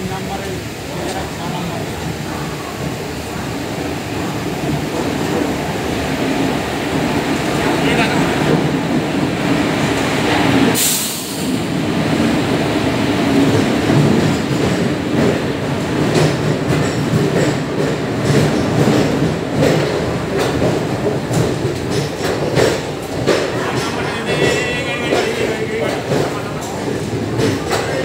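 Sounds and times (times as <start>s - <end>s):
train wheels rumbling on rails: 0.0s - 28.0s
sharp hiss: 10.8s - 11.6s
wheels clacking over rail joints: 13.3s - 28.0s.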